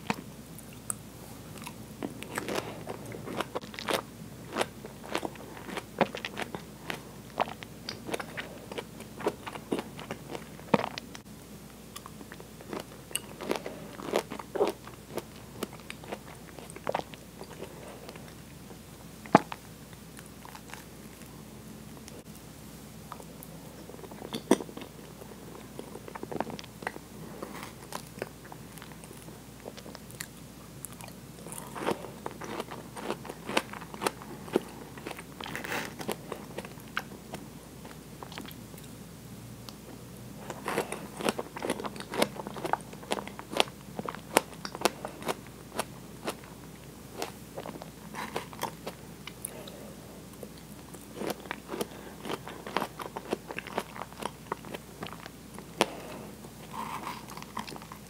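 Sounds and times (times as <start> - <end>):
mouth chewing with wet clicks: 40.5 - 46.5, 50.4 - 58.0.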